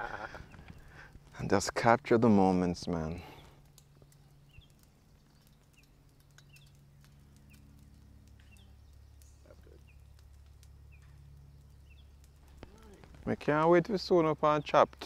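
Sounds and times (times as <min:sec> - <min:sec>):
low steady hum: 0:00.0 - 0:15.0
faint clicks: 0:03.4 - 0:13.4.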